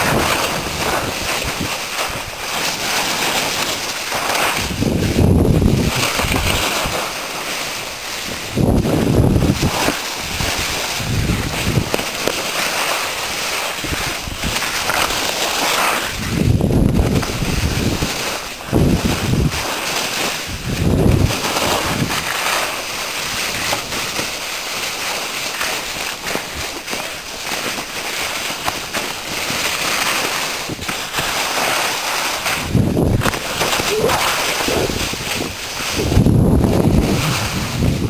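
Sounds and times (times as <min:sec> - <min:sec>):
skis sliding over packed snow: 0:00.0 - 0:38.0
wind buffeting microphone: 0:04.5 - 0:07.0, 0:08.2 - 0:12.0, 0:16.0 - 0:19.6, 0:20.4 - 0:22.2, 0:32.5 - 0:38.0.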